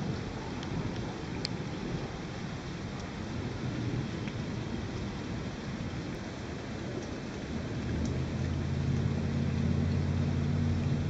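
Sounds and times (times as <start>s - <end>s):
rain falling: 0.0s - 11.0s
low motor hum: 7.0s - 11.0s.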